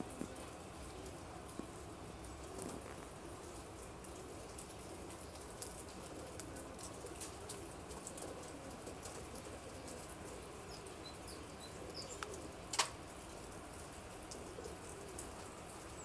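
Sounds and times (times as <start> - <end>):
pigeons cooing: 0.0 - 16.0
small bird chirping: 10.7 - 12.4.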